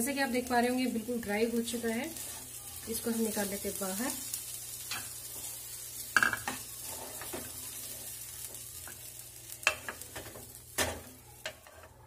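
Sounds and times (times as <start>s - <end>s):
paste sizzling in oil: 0.0s - 11.8s
spatula scraping a pan: 2.1s - 3.2s, 4.8s - 9.0s, 9.6s - 12.0s.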